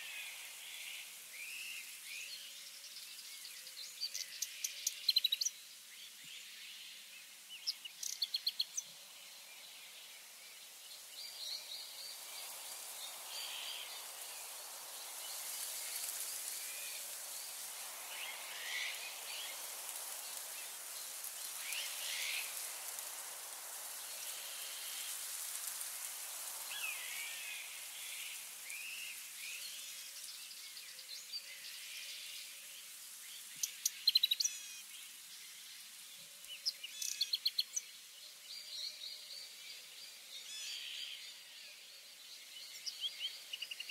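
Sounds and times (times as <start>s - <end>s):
high insect hiss: 0.0s - 30.8s.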